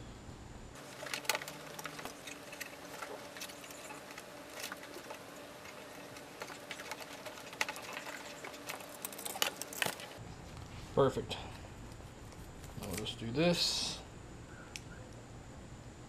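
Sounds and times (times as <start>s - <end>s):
cable clicking and scraping on plastic: 0.8s - 10.2s.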